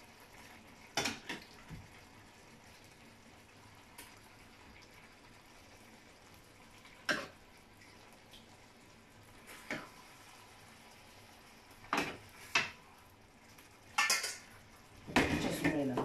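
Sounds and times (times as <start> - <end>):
faint room noise: 0.0 - 16.0.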